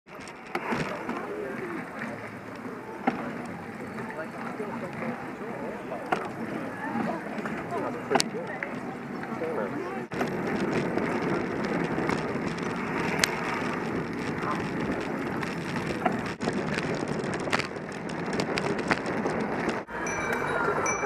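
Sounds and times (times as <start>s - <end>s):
bicycle rolling and rattling: 0.1s - 21.0s.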